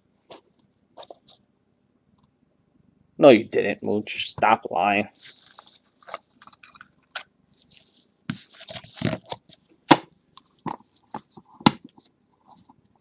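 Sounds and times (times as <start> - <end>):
cards rustling and sliding: 5.1 - 9.6.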